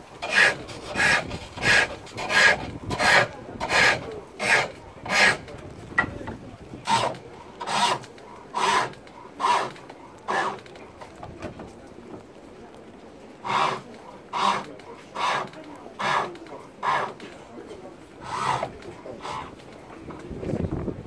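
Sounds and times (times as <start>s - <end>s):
lathe tool scraping wood: 0.0s - 5.6s, 6.8s - 10.8s, 13.4s - 17.4s, 18.1s - 20.2s.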